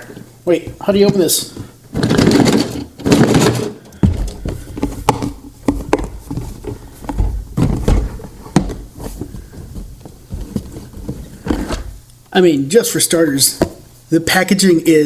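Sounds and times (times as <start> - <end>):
cardboard box lid knocking and scraping: 3.1 - 12.0.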